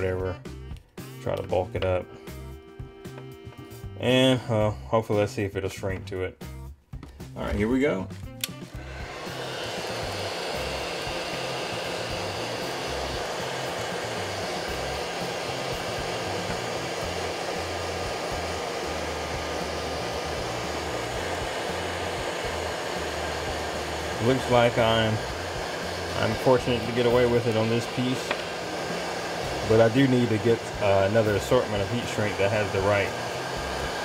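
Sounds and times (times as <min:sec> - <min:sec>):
heat gun blowing hot air: 0:08.3 - 0:34.0.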